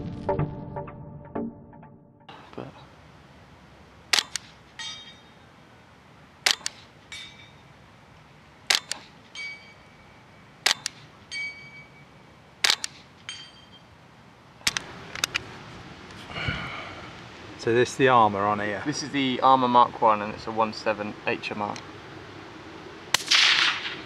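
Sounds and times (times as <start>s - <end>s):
suppressed rifle shots: 4.1s - 4.6s, 6.4s - 6.9s, 8.7s - 9.2s, 10.6s - 11.1s, 12.6s - 13.0s, 23.1s - 24.0s
steel target ringing: 4.8s - 5.5s, 7.1s - 7.8s, 9.3s - 12.3s, 13.2s - 14.0s.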